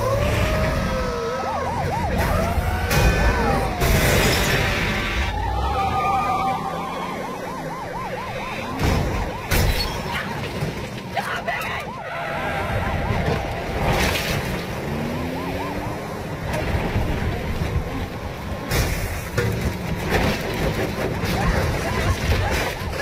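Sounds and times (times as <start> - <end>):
police sirens wailing and yelping: 0.0 - 23.0
engine noise: 12.2 - 22.2.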